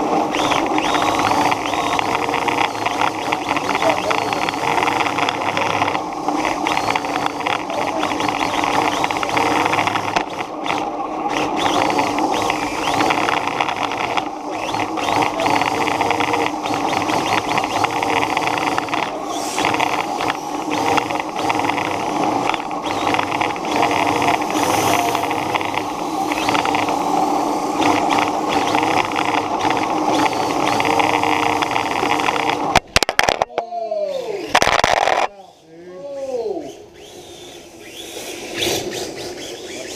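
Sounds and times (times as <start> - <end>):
motor whine: 0.0 - 33.4.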